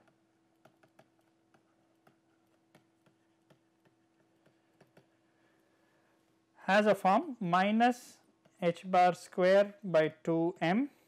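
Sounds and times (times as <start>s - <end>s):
stylus tapping on pen tablet: 0.0s - 5.2s
faint steady hum: 0.0s - 11.0s.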